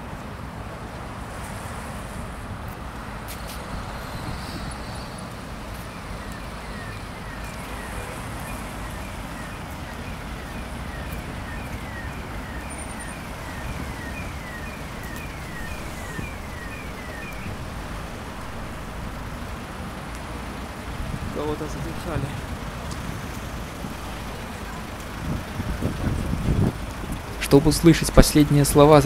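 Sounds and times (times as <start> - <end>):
traffic: 0.0 - 29.0
faint falling chirp: 6.2 - 19.0.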